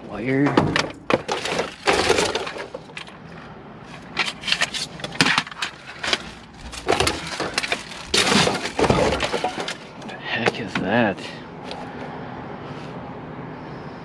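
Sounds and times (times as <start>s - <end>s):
knocks of hard pieces shifting: 0.3s - 3.3s, 3.9s - 11.0s
plastic and paper rustling: 1.2s - 3.1s, 3.9s - 10.0s.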